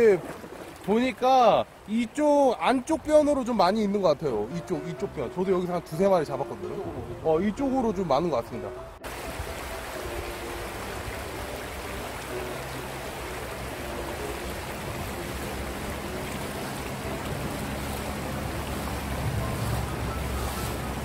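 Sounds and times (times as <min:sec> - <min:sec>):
splashing of wading: 0:00.0 - 0:01.9, 0:09.0 - 0:21.0
water rushing over stones: 0:00.0 - 0:08.2, 0:09.0 - 0:21.0.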